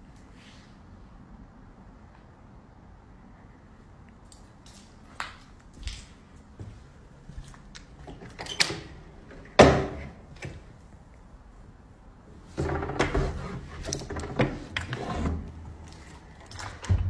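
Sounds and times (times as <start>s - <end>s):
knocks and scrapes of handling: 12.5s - 17.0s.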